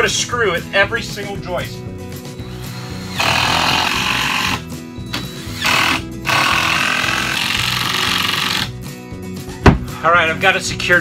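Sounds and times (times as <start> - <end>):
impact driver hammering screws: 2.5 - 4.6, 5.2 - 8.7.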